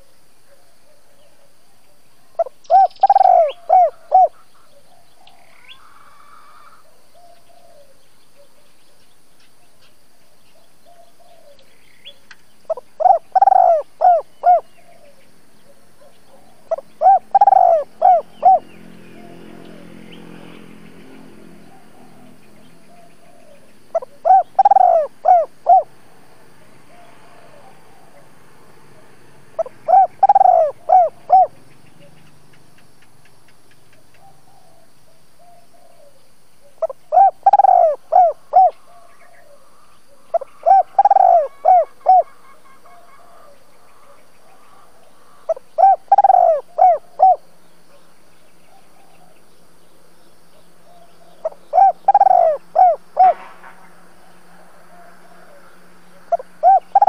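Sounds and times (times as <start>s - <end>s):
dove cooing: 2.4s - 8.6s, 12.7s - 20.1s, 21.7s - 25.9s, 26.6s - 32.4s, 34.1s - 48.0s, 50.6s - 53.6s, 54.5s - 57.0s.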